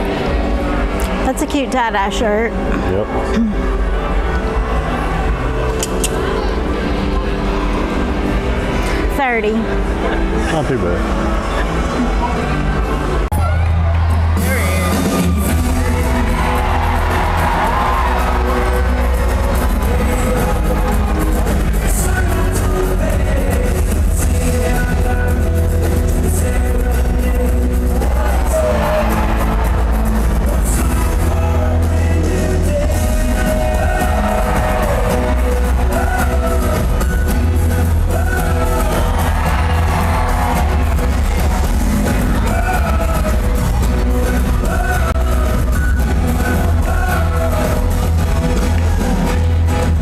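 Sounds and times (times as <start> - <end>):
loud music over sound system: 0.0 - 50.0
heavy bass: 11.1 - 50.0.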